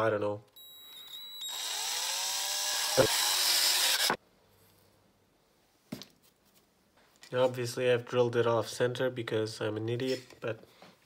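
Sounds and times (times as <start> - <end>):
electric drill boring plastic: 0.6 - 4.2.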